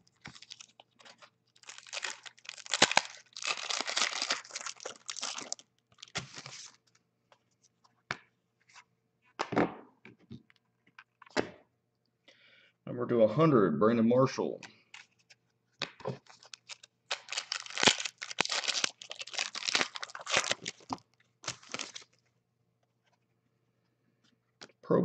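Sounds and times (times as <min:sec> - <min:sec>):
foil wrapper tearing and crinkling: 0:00.1 - 0:06.8, 0:16.2 - 0:22.2
cards clicking and rustling: 0:15.8 - 0:22.1.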